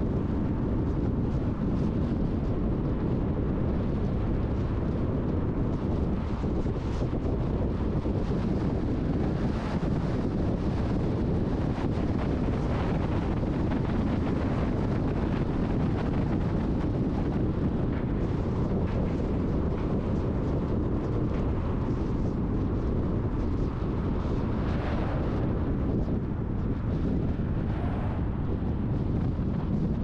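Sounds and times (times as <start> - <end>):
vehicle road and engine noise: 0.0 - 30.0
wind rumble on microphone: 0.0 - 30.0.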